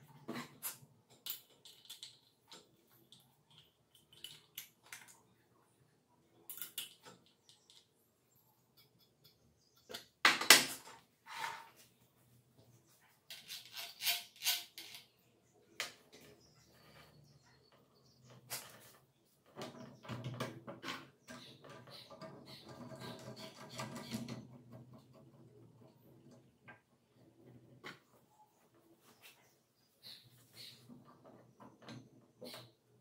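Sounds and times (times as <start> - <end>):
metal rubbing and rattling: 18.2 - 28.3.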